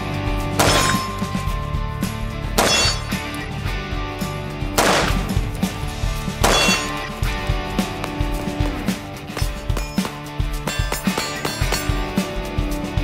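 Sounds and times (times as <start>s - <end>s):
music with steady beat: 0.0s - 13.0s
ringing metallic crashes: 0.6s - 3.4s, 6.4s - 7.2s.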